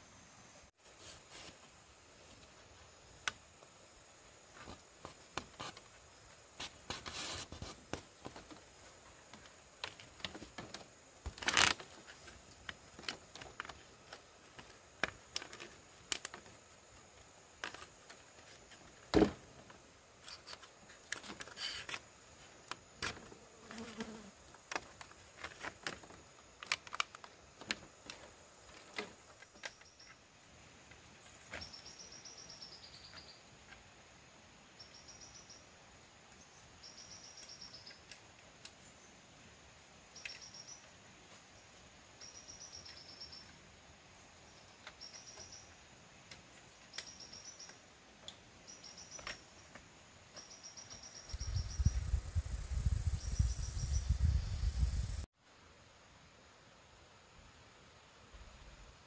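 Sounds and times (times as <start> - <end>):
bamboo taps clicks and scrapes: 3.2 - 3.7, 4.5 - 6.0, 6.6 - 23.3, 24.5 - 29.9.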